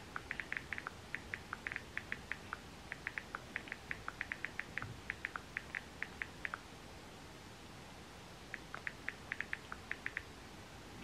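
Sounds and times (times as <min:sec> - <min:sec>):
touchscreen keyboard clicking: 0:00.1 - 0:06.6, 0:08.5 - 0:10.3.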